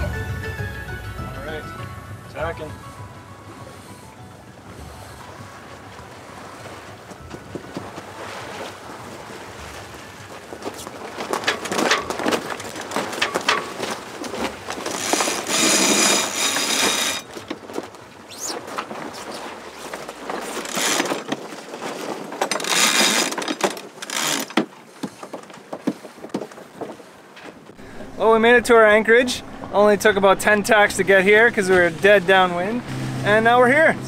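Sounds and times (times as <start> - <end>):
water noise: 0.0 - 34.0
wind: 0.0 - 34.0
winch ratcheting: 11.2 - 17.4, 20.3 - 21.4, 22.4 - 24.7.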